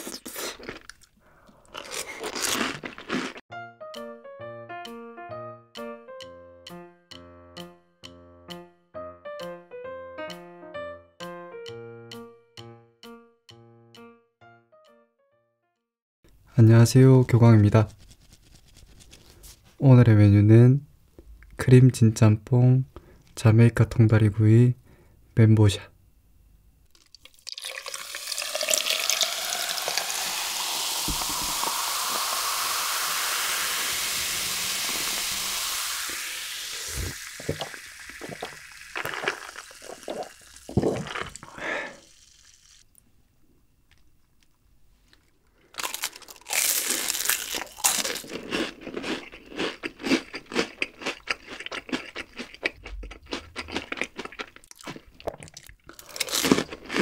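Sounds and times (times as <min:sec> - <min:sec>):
crunchy food being chewed: 0:00.0 - 0:03.4, 0:45.1 - 0:57.0
soda pouring and fizzing: 0:26.9 - 0:42.8.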